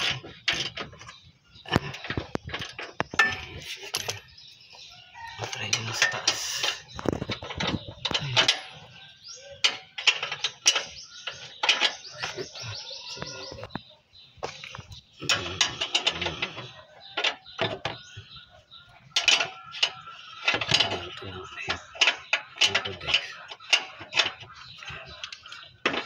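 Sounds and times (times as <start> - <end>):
hand tools clicking on metal bolts: 0.0 - 13.8, 14.4 - 26.0
birds chirping: 0.0 - 26.0.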